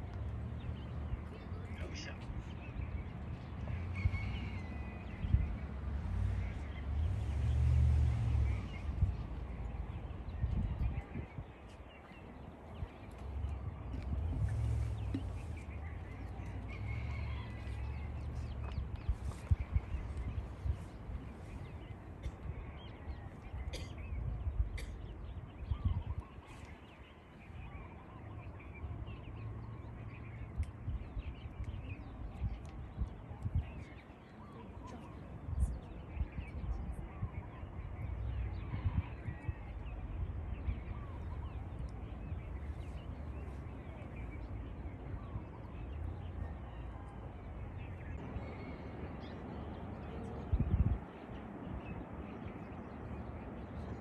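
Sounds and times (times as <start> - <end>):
birds chirping: 0.0 - 54.0
low uneven rumble: 12.8 - 23.6.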